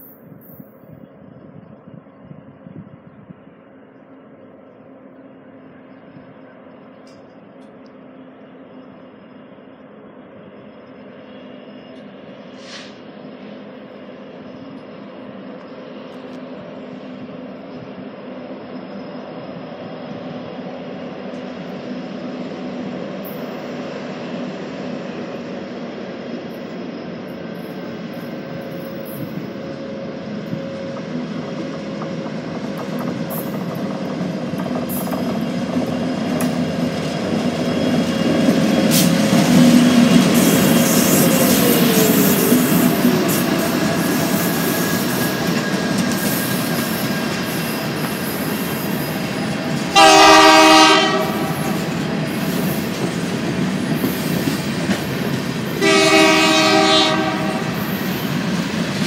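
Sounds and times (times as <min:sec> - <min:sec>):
diesel locomotive engines: 0:00.0 - 0:59.0
hopper cars rolling: 0:30.6 - 0:56.4
train horn blasts: 0:49.9 - 0:51.8, 0:55.8 - 0:57.8.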